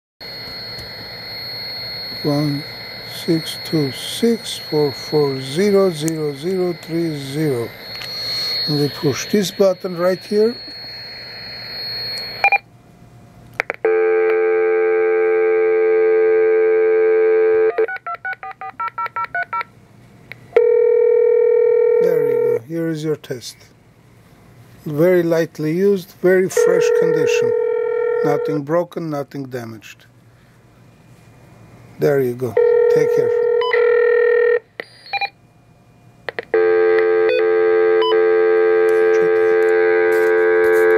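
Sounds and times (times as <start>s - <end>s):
dial tone: 0.2s - 12.6s, 13.9s - 18.8s, 20.6s - 22.6s, 26.6s - 28.5s, 32.6s - 35.3s, 36.6s - 40.9s
touch-tone dialing beeps: 0.3s - 12.6s, 34.8s - 35.3s
short beep: 1.7s - 12.6s
clicks: 7.9s - 8.2s.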